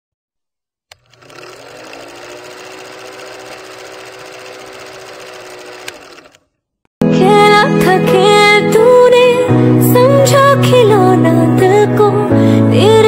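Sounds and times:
film projector clatter: 0.9 - 6.5.

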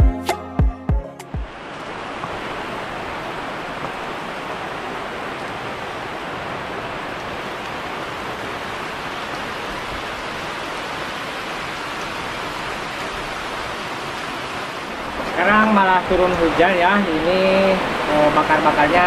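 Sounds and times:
rain on foliage: 1.4 - 19.0.

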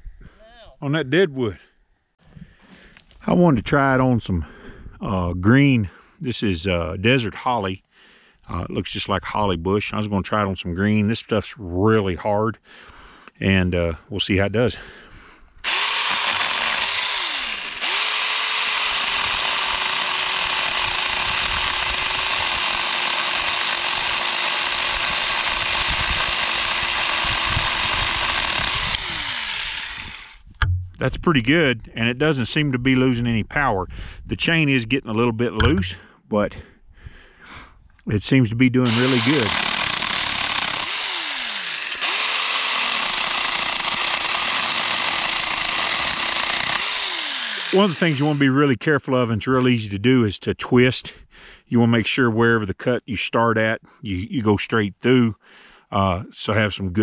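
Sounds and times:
electric chainsaw cutting wood: 15.6 - 30.5, 38.8 - 48.5.

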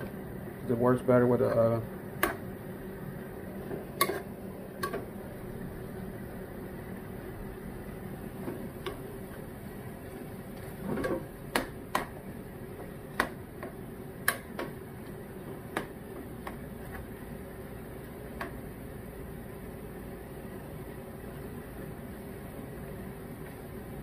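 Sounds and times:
steady low hum: 0.0 - 24.0
spoon scraping pot: 4.0 - 4.3.

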